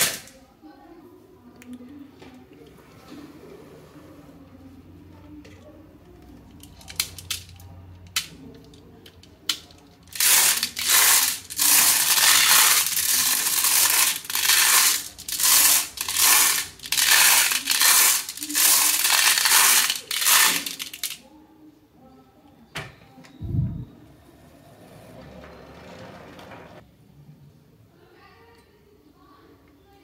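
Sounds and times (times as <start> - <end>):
marbles dropping into plastic: 9.5 - 21.2
marbles rattling in plastic cage: 10.1 - 21.2.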